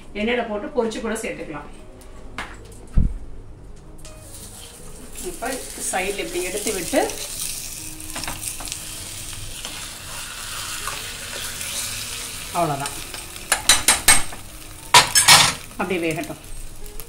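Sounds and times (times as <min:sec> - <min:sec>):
egg sizzling in oil: 0:04.2 - 0:17.0.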